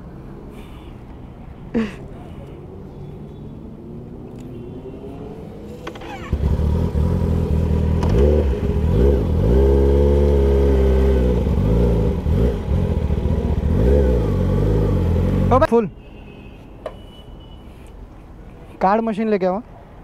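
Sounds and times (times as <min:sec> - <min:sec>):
motorcycle engine revving: 0:05.8 - 0:15.6.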